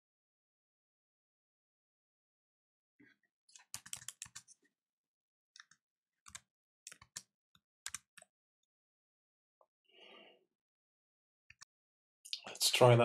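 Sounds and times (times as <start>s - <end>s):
keyboard keys tapping: 3.6s - 4.4s.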